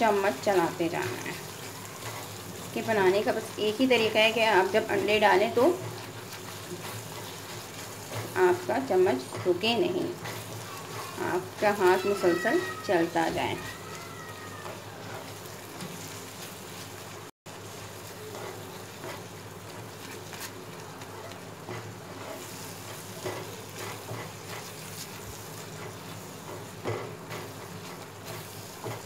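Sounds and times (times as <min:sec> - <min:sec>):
eggs frying in oil: 0:00.0 - 0:29.0
metal spatula scraping pan: 0:04.7 - 0:13.9.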